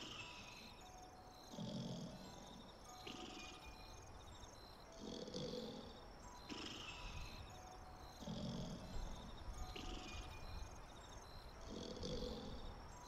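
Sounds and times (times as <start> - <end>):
slow sleeping breaths: 4.9 - 10.4, 11.5 - 13.0.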